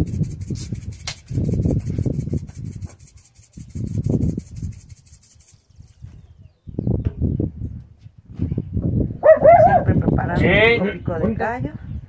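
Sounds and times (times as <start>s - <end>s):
fast even ticking: 0.0s - 5.7s
rubbing noise on microphone: 0.0s - 6.4s.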